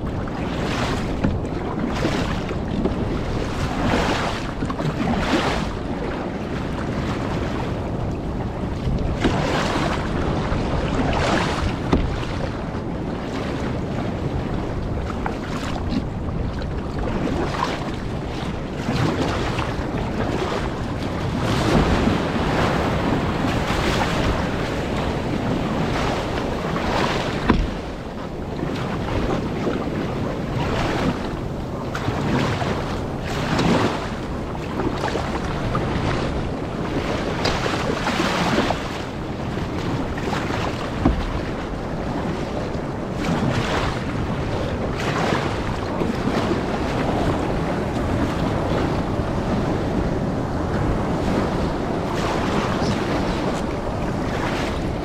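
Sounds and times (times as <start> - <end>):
paddle splashes: 0.0 - 55.0
rushing water: 0.0 - 55.0
wind buffeting microphone: 0.0 - 55.0
breaking surf: 18.8 - 44.2.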